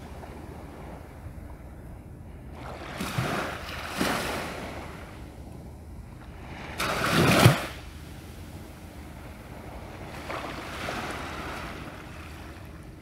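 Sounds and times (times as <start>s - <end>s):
small waves washing on shore: 2.5s - 5.4s, 6.3s - 13.0s.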